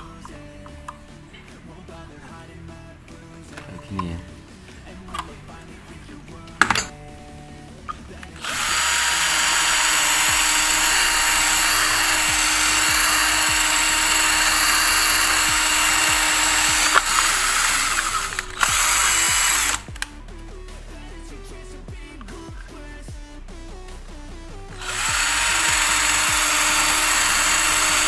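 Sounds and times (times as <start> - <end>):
cordless drill boring plastic: 8.2 - 20.0, 24.7 - 28.0.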